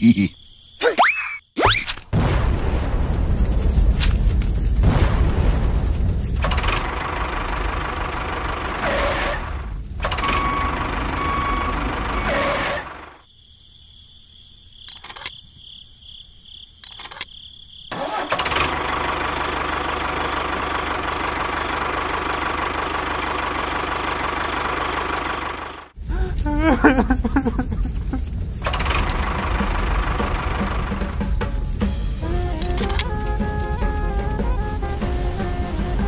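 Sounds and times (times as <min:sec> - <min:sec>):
tractor engine running: 0:02.6 - 0:13.2, 0:17.9 - 0:36.0
short clicks: 0:14.9 - 0:15.4, 0:16.8 - 0:17.3, 0:32.6 - 0:33.4.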